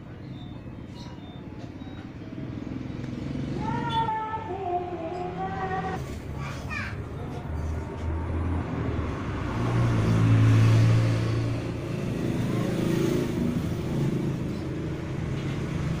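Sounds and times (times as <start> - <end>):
motor vehicle engine humming: 0.0 - 16.0.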